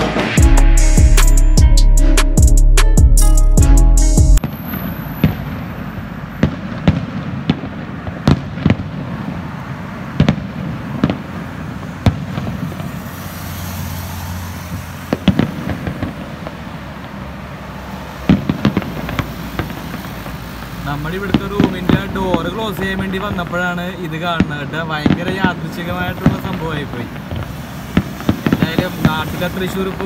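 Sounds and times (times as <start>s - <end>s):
fireworks booming: 0.0s - 1.6s, 4.4s - 30.0s
loud intro music: 0.0s - 4.4s
steady background noise: 4.4s - 30.0s.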